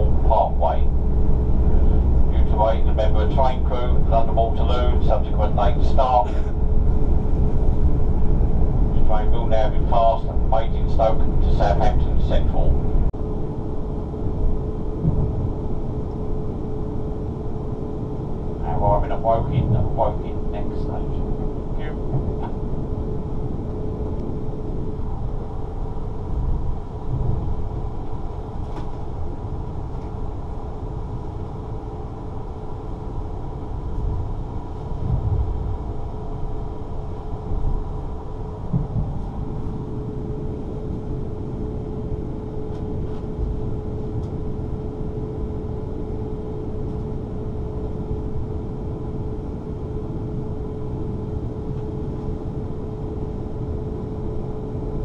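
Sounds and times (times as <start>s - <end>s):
train wheels rumbling on track: 0.0s - 13.1s, 18.5s - 30.6s
steady hum: 0.0s - 55.0s
train bumps: 15.0s - 15.5s, 21.8s - 22.7s, 38.7s - 39.4s.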